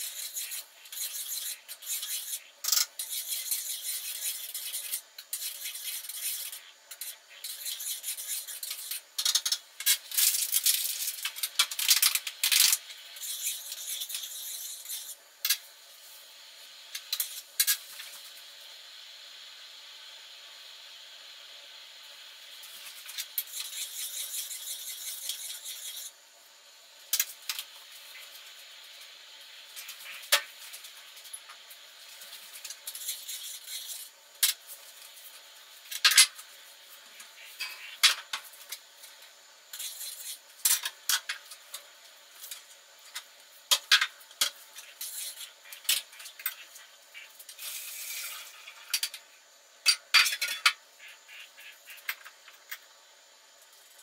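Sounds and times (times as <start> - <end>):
steady rushing hiss: 0.0 - 54.0
dishes and cutlery clattering: 49.9 - 50.8.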